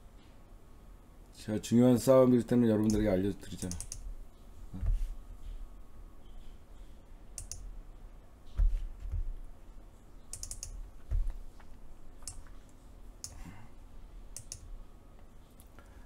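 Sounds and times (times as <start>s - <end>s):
computer keyboard and mouse clicks: 2.8s - 4.1s, 7.4s - 7.7s, 10.3s - 13.4s, 14.3s - 14.7s
dull thumps: 8.5s - 9.4s.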